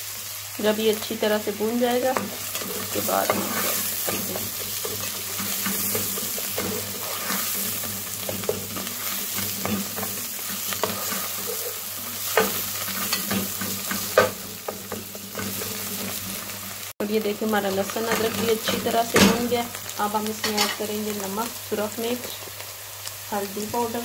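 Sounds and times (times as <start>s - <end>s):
onions sizzling in oil: 0.0s - 24.0s
spatula scraping and knocking pan: 2.0s - 16.5s.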